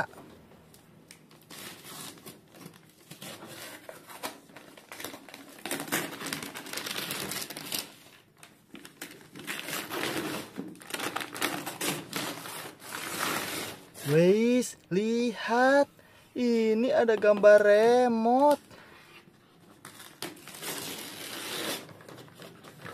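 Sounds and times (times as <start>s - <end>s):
wrapping paper tearing and rustling: 1.1s - 14.6s, 19.3s - 22.9s.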